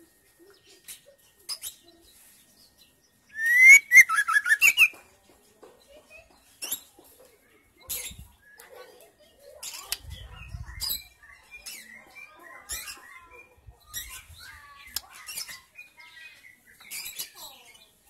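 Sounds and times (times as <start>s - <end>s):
bird chirping and whistling: 3.3s - 4.9s
sharp clicks in cage: 9.6s - 10.2s, 14.8s - 15.6s.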